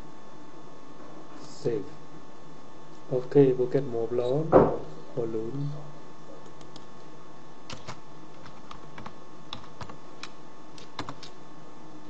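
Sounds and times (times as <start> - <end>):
background hiss and hum: 0.0 - 12.0
keyboard keys clicking: 7.7 - 11.4.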